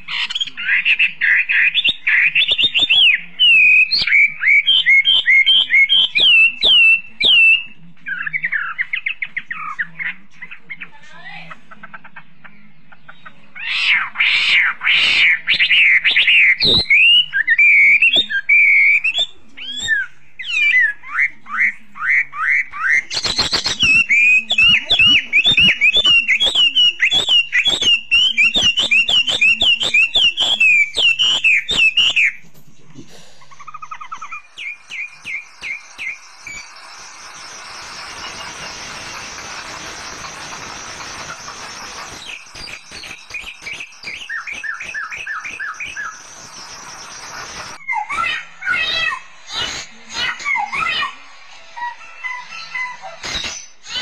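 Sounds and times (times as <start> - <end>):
songbird singing whistled notes: 0.1 - 10.8, 12.1 - 32.4, 33.6 - 48.4
steady hiss: 34.6 - 44.1.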